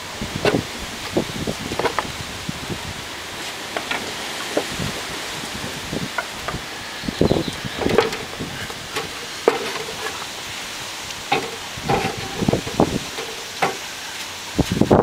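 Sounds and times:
wooden blocks knocking in metal tin: 0:07.8 - 0:10.2, 0:11.3 - 0:13.8.

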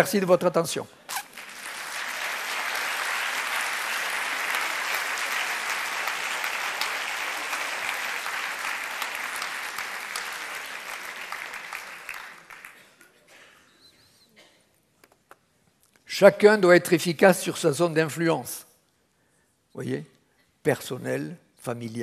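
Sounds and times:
audience applauding: 0:01.2 - 0:12.9.

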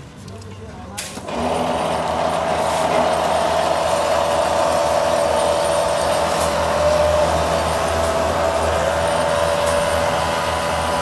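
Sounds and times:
loud mechanical drone: 0:01.2 - 0:11.0.

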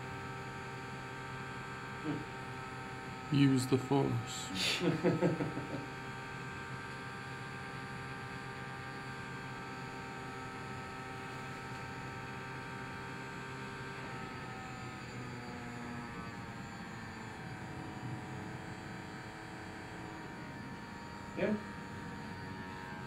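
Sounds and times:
small electric fan whirring: 0:00.0 - 0:23.0.

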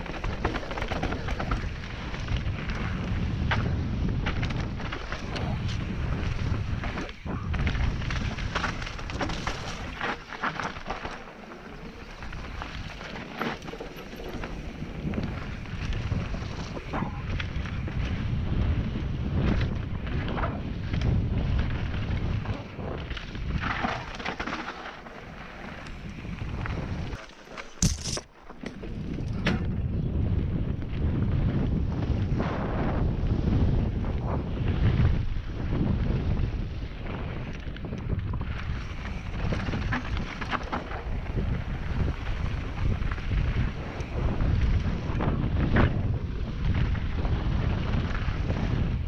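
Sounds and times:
bike clattering and clicking: 0:00.0 - 0:07.1, 0:08.0 - 0:18.1, 0:22.0 - 0:29.8
tyres rolling on dirt: 0:00.0 - 0:29.2
wind rumbling on microphone: 0:00.0 - 0:49.0
tyres crunching over stones: 0:27.2 - 0:28.4.

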